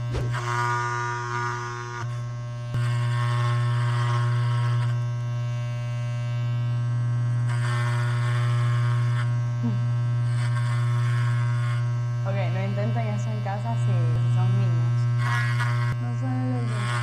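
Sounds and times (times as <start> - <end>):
hair clipper buzzing: 0.0 - 17.0
clipper blades rasping through hair: 10.3 - 17.0.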